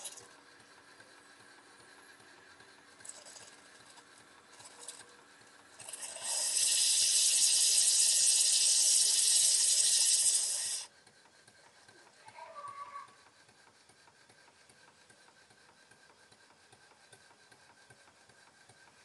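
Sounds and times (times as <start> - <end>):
steam hissing: 0.8 - 10.9.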